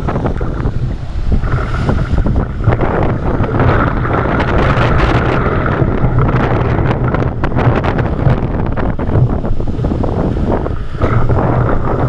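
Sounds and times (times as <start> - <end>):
breaking surf: 0.0 - 12.0
water splashing around kayak: 0.0 - 12.0
wind buffeting microphone: 0.0 - 12.0.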